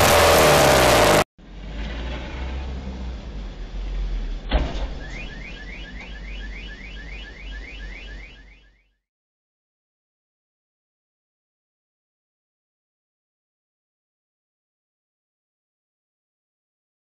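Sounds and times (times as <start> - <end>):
street traffic: 0.0 - 8.9
vehicles colliding bang: 1.4 - 8.0
car alarm chirping: 4.9 - 9.0.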